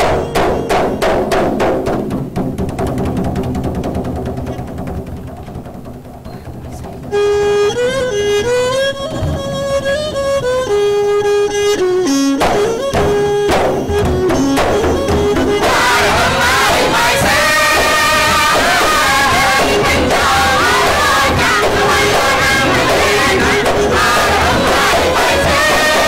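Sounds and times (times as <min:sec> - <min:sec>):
frame drums struck in rhythm: 0:00.0 - 0:07.4, 0:12.4 - 0:26.0
bowed fiddle melody: 0:06.4 - 0:26.0
chorus of voices singing: 0:15.5 - 0:26.0.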